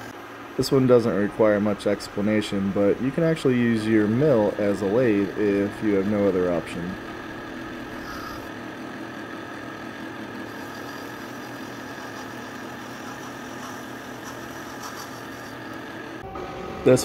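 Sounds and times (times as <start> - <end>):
high machine whine: 0.0 - 17.0
milling machine hum and hiss: 0.0 - 17.0.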